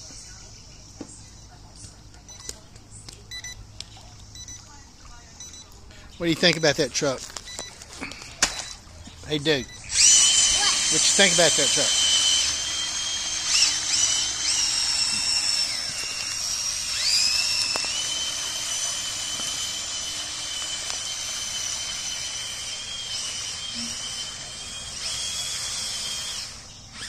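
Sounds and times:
toy truck electric motor whining: 6.3s - 27.0s.

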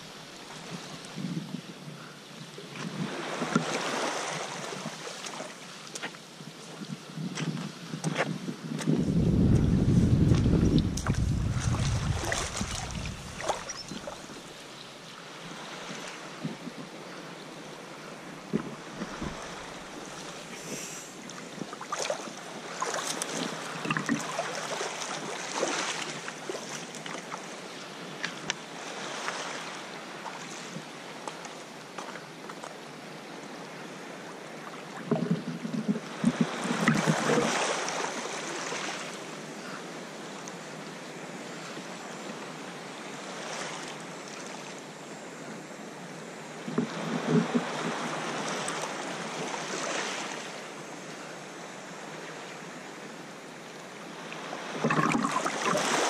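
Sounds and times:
water lapping around kayak: 0.0s - 56.0s
paddle splashes: 2.8s - 6.2s, 9.5s - 14.6s, 21.6s - 27.5s, 36.1s - 39.2s, 54.6s - 56.0s
waves washing over rocks: 9.0s - 14.6s, 54.4s - 56.0s.

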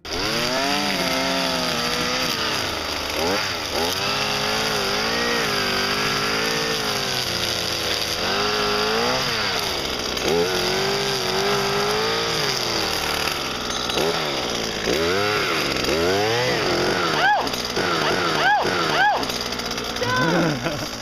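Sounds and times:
two-stroke engine revving: 0.0s - 21.0s.

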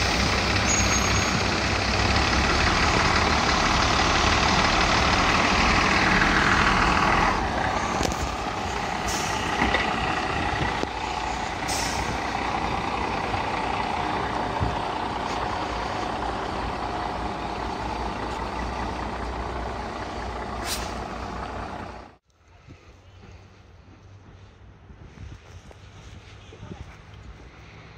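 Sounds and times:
diesel railcar engine rumble: 0.0s - 27.9s
brief hisses: 20.6s - 21.0s.

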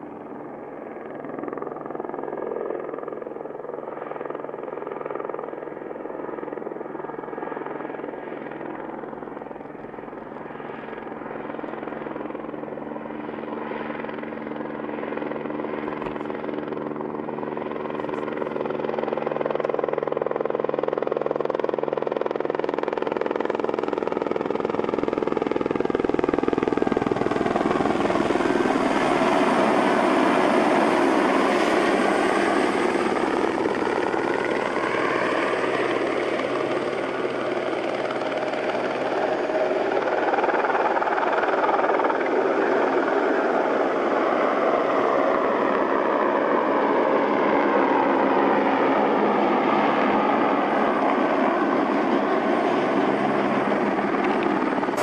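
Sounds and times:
helicopter rotor and engine: 0.0s - 55.0s.

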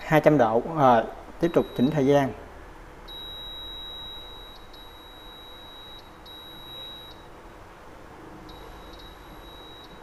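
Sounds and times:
control panel beeping: 1.4s - 2.1s, 3.1s - 7.4s, 8.5s - 10.0s.

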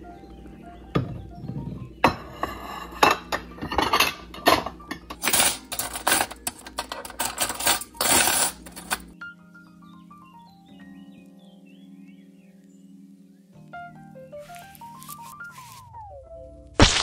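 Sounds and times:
ceramic bowls clinking: 2.0s - 9.2s
metal forks clattering: 2.1s - 9.2s.

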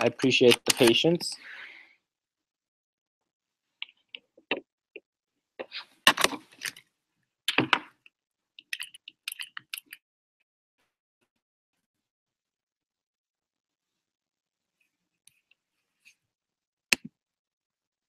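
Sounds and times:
small hard objects clicking on desk: 8.6s - 10.0s.

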